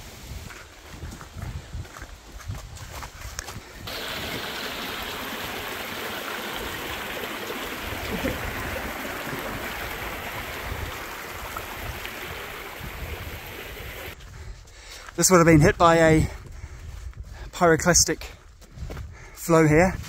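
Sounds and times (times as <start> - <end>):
stream rushing over stones: 3.9 - 14.2.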